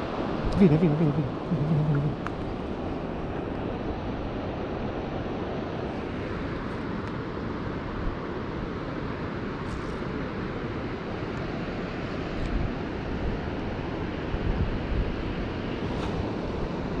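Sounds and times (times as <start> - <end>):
river water rushing: 0.0 - 14.4
wind buffeting microphone: 12.3 - 17.0.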